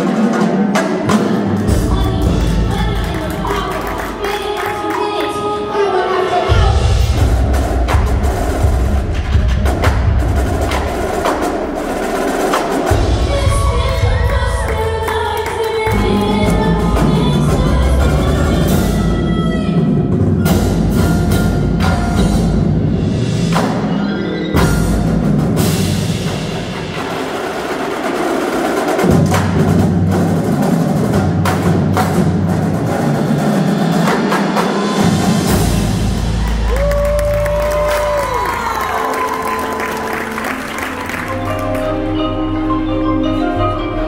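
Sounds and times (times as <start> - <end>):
drums: 0.0 - 44.0
marimbas and vibraphones: 19.8 - 26.2, 39.0 - 44.0.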